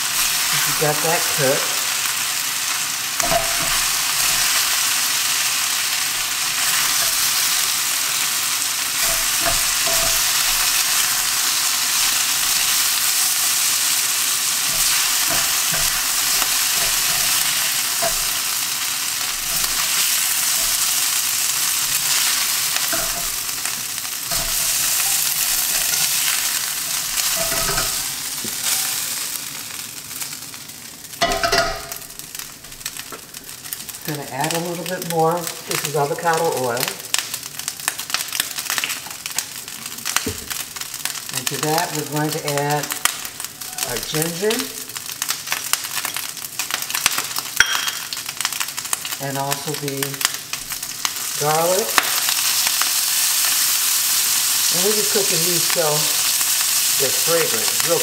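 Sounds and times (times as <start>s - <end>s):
meat sizzling in a wok: 0.0s - 58.0s
spatula scraping a wok: 6.2s - 29.0s.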